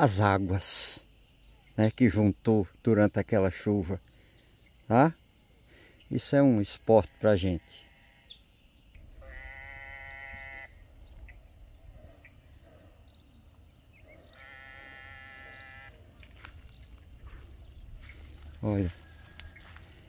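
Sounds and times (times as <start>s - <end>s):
frogs droning calls: 4.0s - 20.0s.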